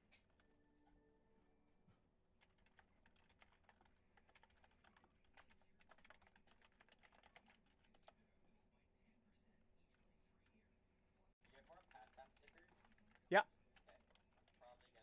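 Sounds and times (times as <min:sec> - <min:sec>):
computer keyboard typing: 0:02.4 - 0:08.2, 0:11.4 - 0:15.0.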